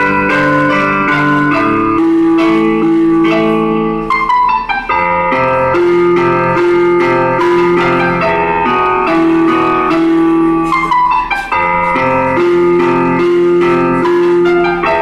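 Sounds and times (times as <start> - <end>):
keyboard playing slow chords: 0.0 - 15.0.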